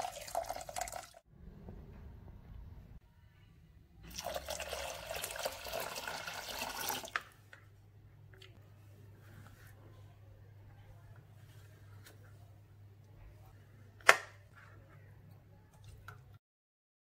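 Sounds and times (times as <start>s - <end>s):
water pouring into saucepan: 0.0s - 1.3s, 4.1s - 7.3s.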